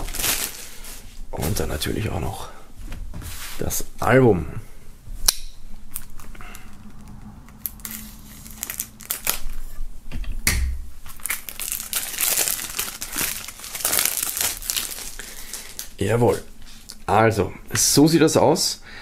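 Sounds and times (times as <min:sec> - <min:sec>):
plastic film crinkling: 0:00.0 - 0:02.0, 0:07.6 - 0:09.8, 0:11.0 - 0:16.9
knife scratching plastic film: 0:07.6 - 0:09.8.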